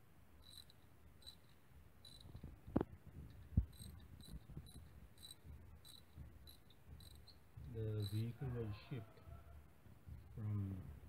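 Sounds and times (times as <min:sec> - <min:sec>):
cricket chirping: 0:00.4 - 0:02.5, 0:03.6 - 0:08.4
ratchet knocking against metal: 0:03.6 - 0:08.3.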